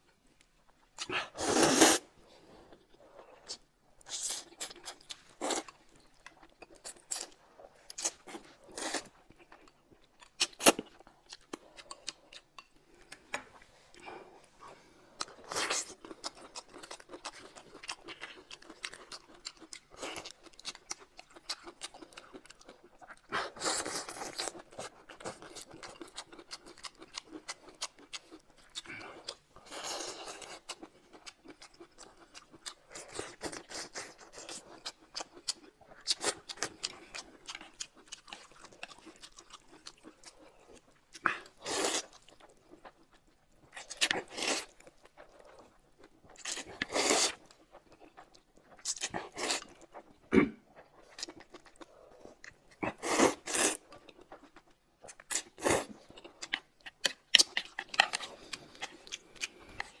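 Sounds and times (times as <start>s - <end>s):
chewing: 0.0s - 60.0s
slurping noodles and soup: 1.1s - 2.6s, 46.5s - 47.4s, 51.9s - 54.0s.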